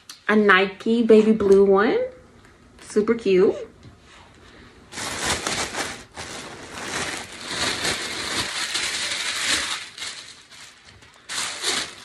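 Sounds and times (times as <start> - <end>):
plastic bag crinkling: 4.9 - 12.0.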